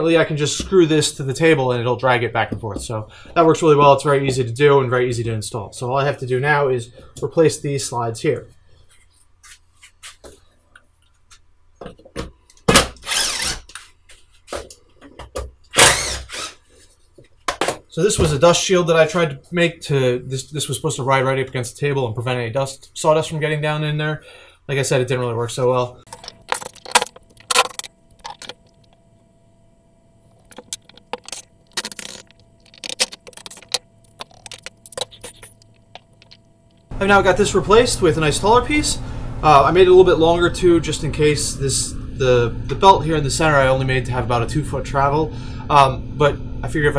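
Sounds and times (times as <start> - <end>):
cordless drill running: 12.7 - 13.8, 15.7 - 16.6
tools clicking and knocking: 30.4 - 36.4.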